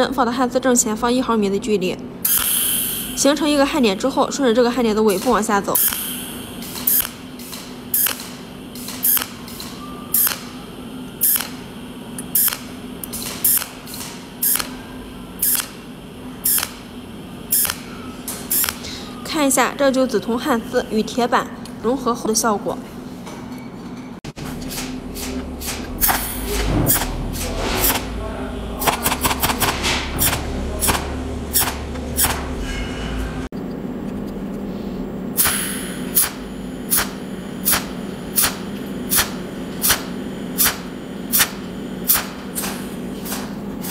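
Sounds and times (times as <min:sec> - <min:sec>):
steady low hum: 0:00.0 - 0:43.9
welding arc pulses hissing: 0:02.3 - 0:03.6, 0:05.8 - 0:17.9, 0:25.0 - 0:32.5, 0:35.3 - 0:43.9.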